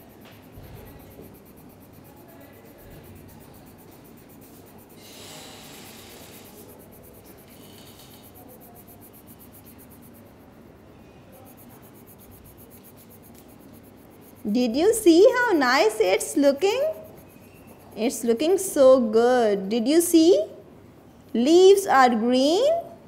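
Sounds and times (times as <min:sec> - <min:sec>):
colour pencil scratching on paper: 0:00.3 - 0:10.4, 0:11.4 - 0:18.8.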